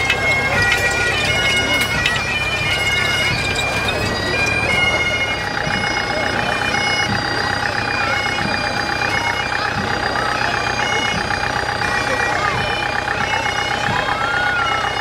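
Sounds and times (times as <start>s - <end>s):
bagpipes playing a tune: 0.0s - 15.0s
tractor engine running: 0.0s - 15.0s.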